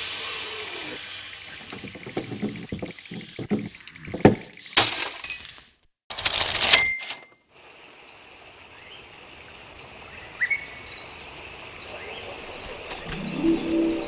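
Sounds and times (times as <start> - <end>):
bird chirp: 10.1 - 14.0
low sustained music notes: 13.1 - 14.0.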